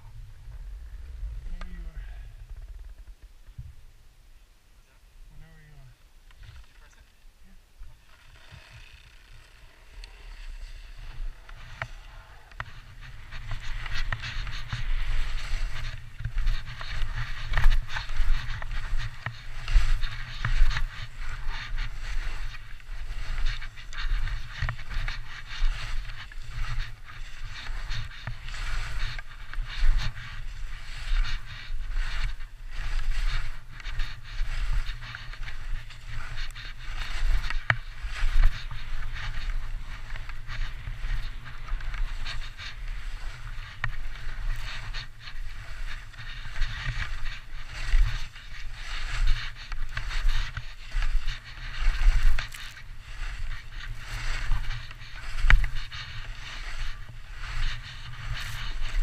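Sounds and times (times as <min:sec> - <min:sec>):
wind buffeting camera: 0:00.0 - 0:04.0, 0:07.8 - 0:59.0
skis scraping through snow: 0:08.0 - 0:59.0.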